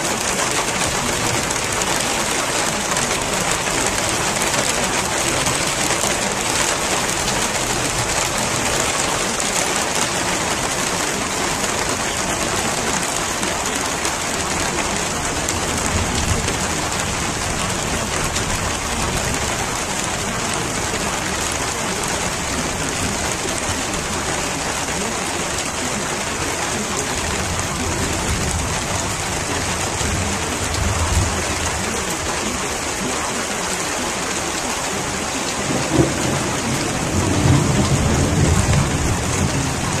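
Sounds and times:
heavy rain: 0.0s - 40.0s
thunder rumbling: 35.6s - 40.0s.

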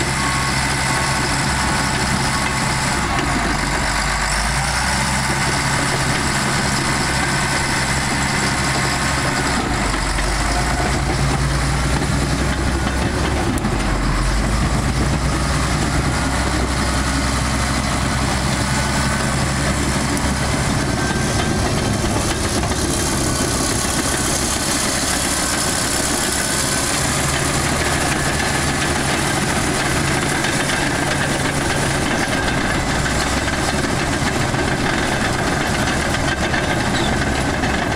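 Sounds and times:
diesel engine running: 0.0s - 37.9s
steel tracks clattering: 18.0s - 37.9s.

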